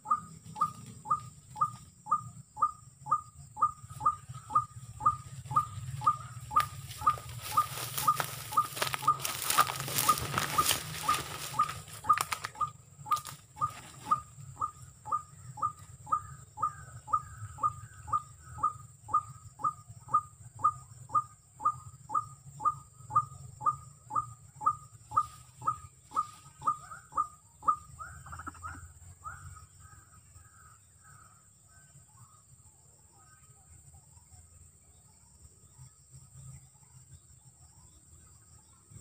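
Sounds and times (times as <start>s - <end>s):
waterhen calling: 3.9s - 14.7s.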